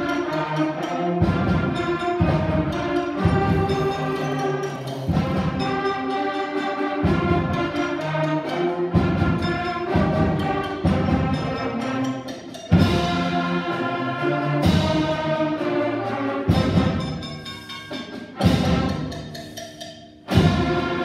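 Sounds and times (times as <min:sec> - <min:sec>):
concert band chords: 0:00.0 - 0:21.0
percussion hits: 0:00.0 - 0:21.0.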